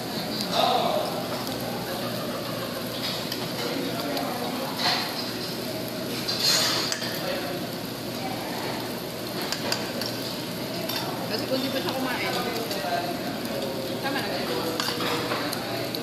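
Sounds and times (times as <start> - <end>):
steady background hum: 0.0 - 16.0
cutlery clinking on plates: 2.9 - 3.8, 4.8 - 5.6, 6.2 - 7.2, 9.4 - 11.9, 14.6 - 15.6.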